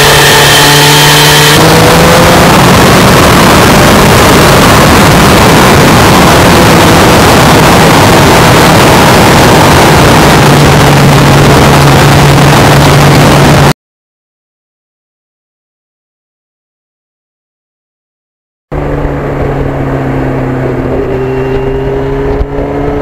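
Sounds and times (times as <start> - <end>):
motorcycle engine running: 0.0 - 13.7, 18.7 - 23.0
wind rushing on microphone: 0.0 - 13.7, 18.8 - 23.0.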